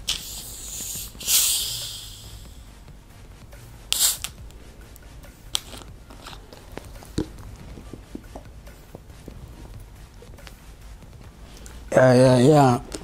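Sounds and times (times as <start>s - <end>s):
soda bottle hiss: 0.0s - 2.8s, 3.9s - 4.4s, 5.5s - 6.4s.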